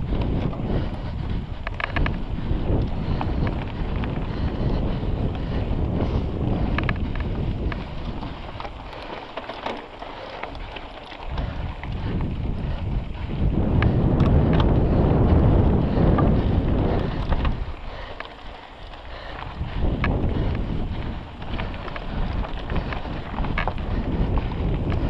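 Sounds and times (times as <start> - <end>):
bike clicks and rattles: 0.0 - 25.0
wind buffeting microphone: 0.0 - 25.0.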